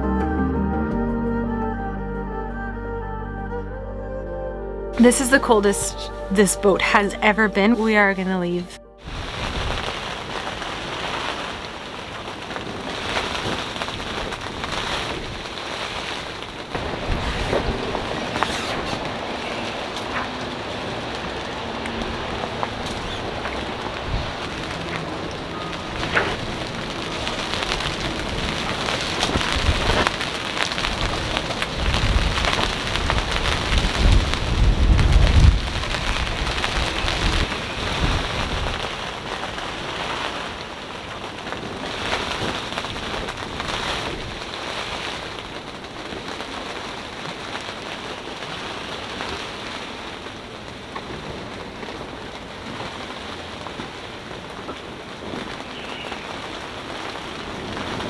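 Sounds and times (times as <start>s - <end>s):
wind and rain hissing: 9.0s - 58.0s
wind gusts buffeting microphone: 9.1s - 58.0s.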